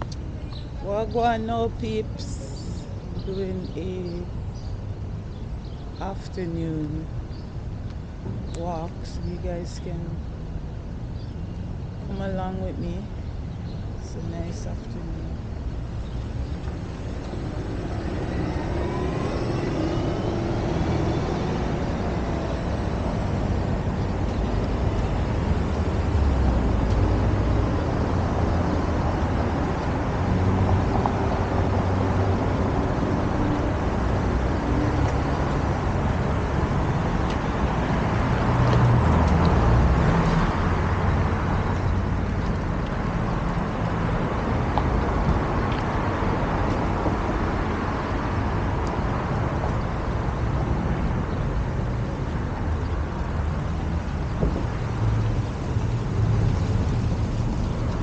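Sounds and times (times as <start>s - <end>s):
cars passing: 0.0s - 58.0s
faint rising engine whine: 15.0s - 37.2s.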